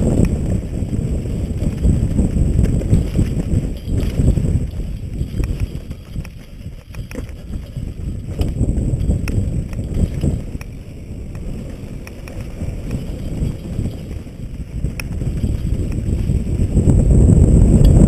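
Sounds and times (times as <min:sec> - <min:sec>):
bike clicking and rattling: 0:00.0 - 0:18.0
bike tyres rumbling on dirt trail: 0:00.0 - 0:18.0
wind buffeting microphone: 0:00.0 - 0:18.0.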